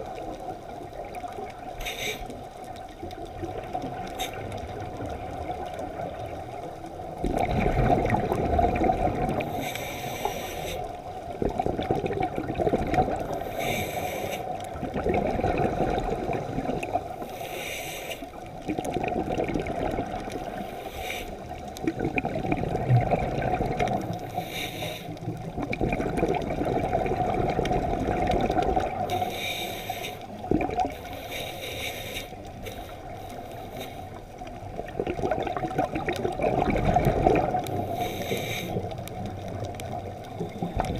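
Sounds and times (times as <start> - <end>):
exhaled bubbles gurgling: 0.0 - 40.9
underwater wash: 0.0 - 40.9
diver breathing through regulator: 1.8 - 2.4, 9.4 - 11.0, 13.3 - 14.7, 17.1 - 18.4, 20.5 - 21.5, 24.1 - 25.4, 29.0 - 34.2, 37.5 - 39.1.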